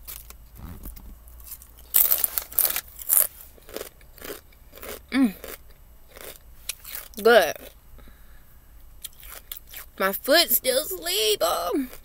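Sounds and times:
chips crunching while chewed: 0:01.4 - 0:07.2, 0:09.0 - 0:09.9.

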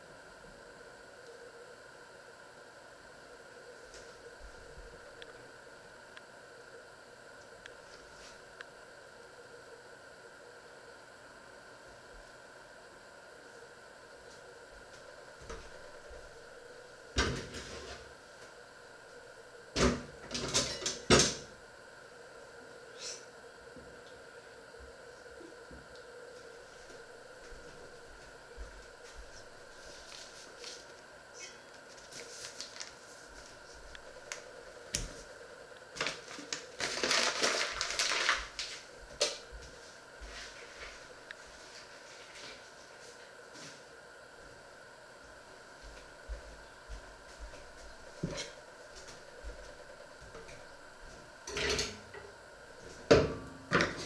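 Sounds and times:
paper bag crinkling: 0:32.0 - 0:33.1, 0:36.0 - 0:38.8.

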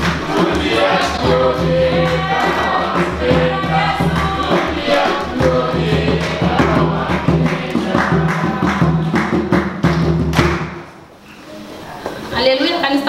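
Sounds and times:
congregation singing: 0:00.0 - 0:10.2
bass line: 0:00.0 - 0:10.4
drum beats: 0:00.0 - 0:11.0.

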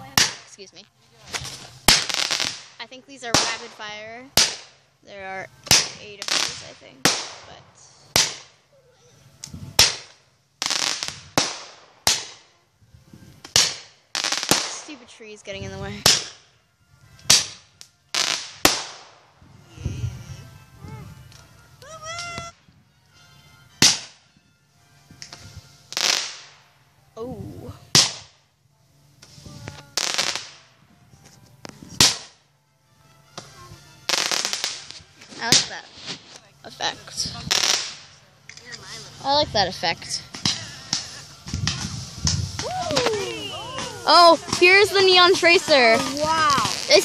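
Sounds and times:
fireworks crackling: 0:00.0 - 0:24.2, 0:24.9 - 0:26.9, 0:27.5 - 0:32.6, 0:33.2 - 0:47.0
fireworks bangs: 0:01.3 - 0:04.8, 0:05.6 - 0:08.6, 0:09.6 - 0:12.5, 0:13.4 - 0:16.4, 0:17.2 - 0:19.4, 0:25.2 - 0:26.6, 0:29.2 - 0:30.8, 0:34.1 - 0:38.2, 0:38.9 - 0:47.0
faint firework pops: 0:05.6 - 0:08.6, 0:13.4 - 0:15.0, 0:23.8 - 0:24.2, 0:25.2 - 0:26.6, 0:40.3 - 0:47.0.

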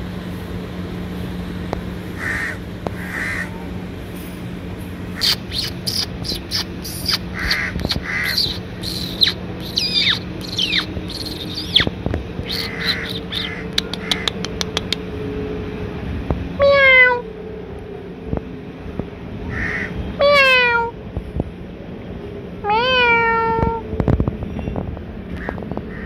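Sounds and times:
low steady hum: 0:00.0 - 0:26.0
birds calling: 0:02.2 - 0:03.7, 0:05.1 - 0:15.1, 0:19.5 - 0:20.6, 0:25.3 - 0:26.0
loud drawn-out bird call: 0:02.2 - 0:03.7, 0:05.2 - 0:14.3, 0:19.5 - 0:20.6
clicking bird chips: 0:05.2 - 0:15.0.

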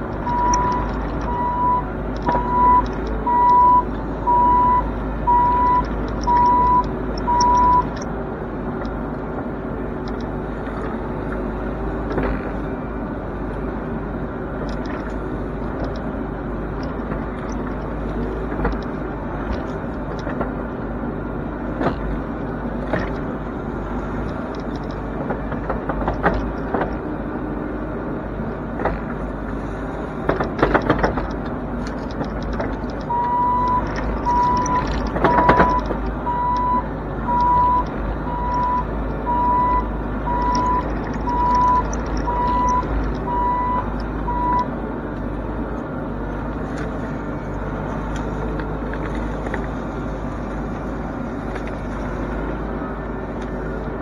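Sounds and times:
diesel engine running: 0:00.0 - 0:54.0
warning alarm beeping: 0:00.2 - 0:07.9, 0:33.1 - 0:44.7.

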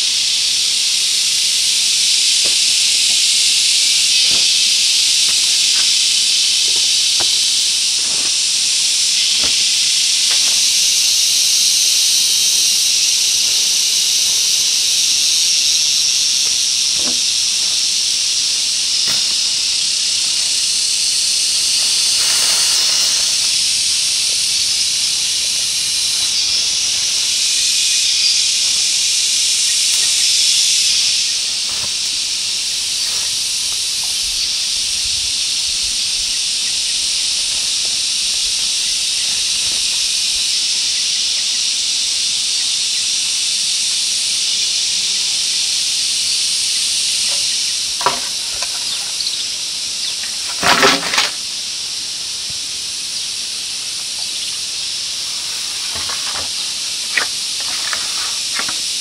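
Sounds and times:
chorus of forest insects: 0:00.0 - 0:59.0.

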